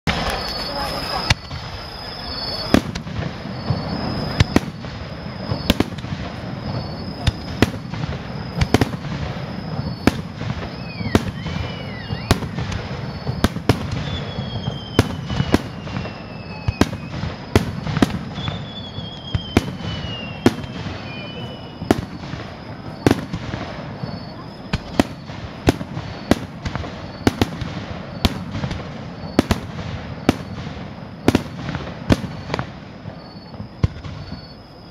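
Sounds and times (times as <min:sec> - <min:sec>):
fireworks bursting: 0:00.0 - 0:34.9
fireworks whistling down: 0:00.0 - 0:34.9.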